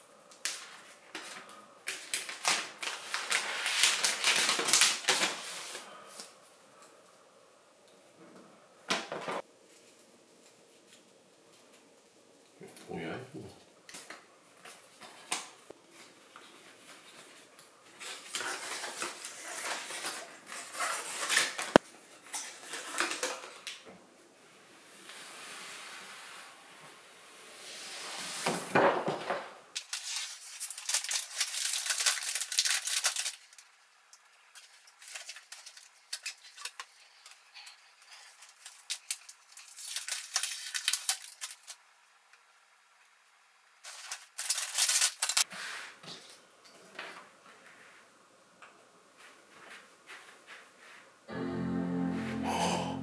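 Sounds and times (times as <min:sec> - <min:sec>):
packaging rustling and crinkling: 0:00.4 - 0:06.4, 0:14.0 - 0:23.8, 0:29.8 - 0:33.8, 0:34.4 - 0:41.8, 0:43.8 - 0:45.5.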